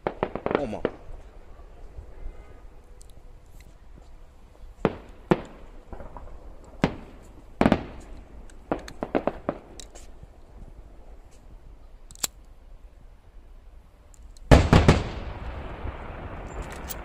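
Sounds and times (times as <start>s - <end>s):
fireworks bursting: 0.0s - 1.5s, 4.0s - 10.2s, 14.5s - 17.0s.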